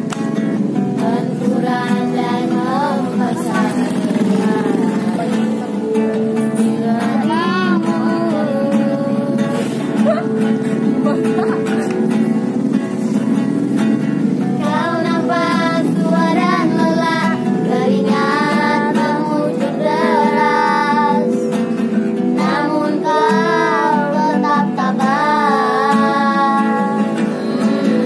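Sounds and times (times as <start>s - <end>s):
acoustic guitar strumming: 0.0s - 28.0s
young voice singing: 0.9s - 10.4s, 14.6s - 21.6s, 22.3s - 28.0s.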